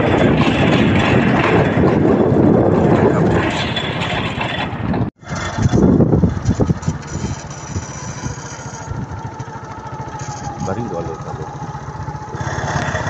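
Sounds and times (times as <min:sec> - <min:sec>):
loud wind: 0:00.0 - 0:09.5
road rumble: 0:00.0 - 0:13.0
small vehicle engine running: 0:00.0 - 0:13.0.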